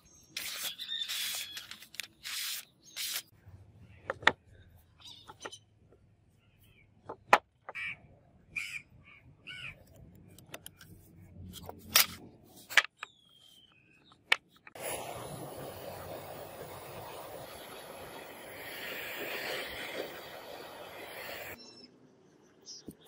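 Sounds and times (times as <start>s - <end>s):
steady rushing noise: 14.8s - 21.6s.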